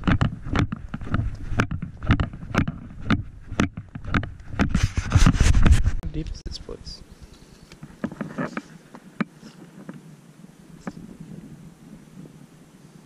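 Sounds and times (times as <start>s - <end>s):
footsteps on wooden planks: 0.0s - 6.0s
wind rumble on microphone: 0.0s - 7.1s, 9.6s - 13.0s.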